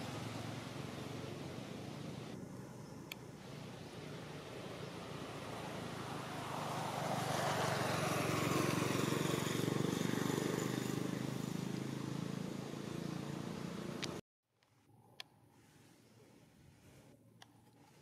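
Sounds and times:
vehicle engine passing by: 0.0s - 14.2s.

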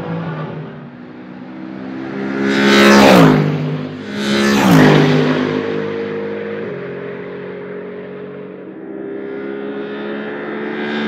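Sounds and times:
race car engine full throttle: 0.0s - 11.0s
race car passing by: 0.0s - 11.0s.

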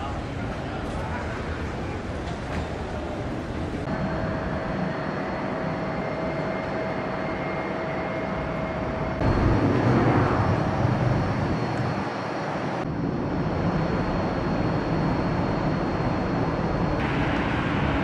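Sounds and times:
broad hum and low rumble: 0.0s - 18.0s.

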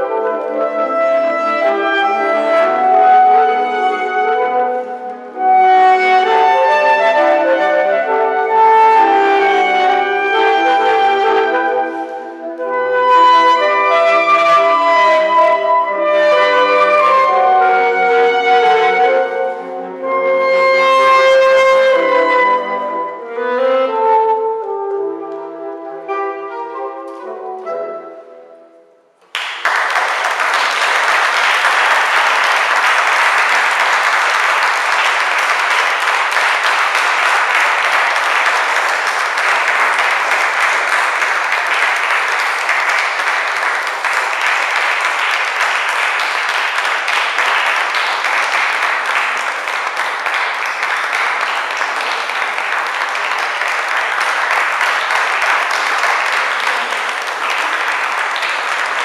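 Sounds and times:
audience applause: 29.3s - 59.0s.

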